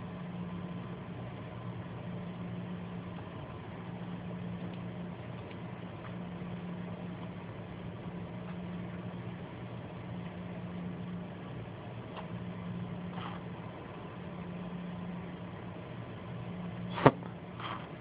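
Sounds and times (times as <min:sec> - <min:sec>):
low mechanical hum: 0:00.0 - 0:18.0
faint clicks: 0:04.6 - 0:06.2.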